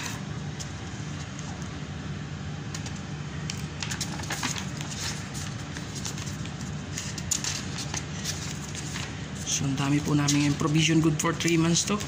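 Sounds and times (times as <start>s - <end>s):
steady low hum: 0.0s - 12.0s
paper rustling: 3.8s - 12.0s.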